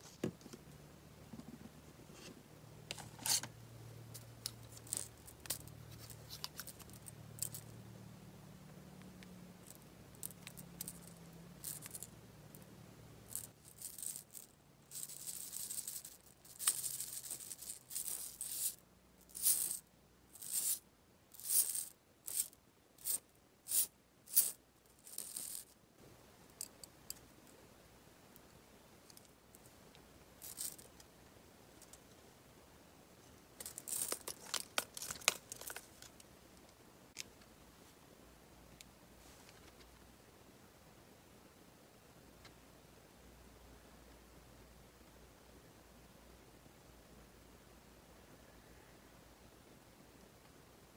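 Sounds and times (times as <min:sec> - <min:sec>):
candy balls rattling in plastic tubes: 0:04.1 - 0:07.8, 0:09.6 - 0:25.7, 0:30.4 - 0:31.0, 0:33.6 - 0:36.2.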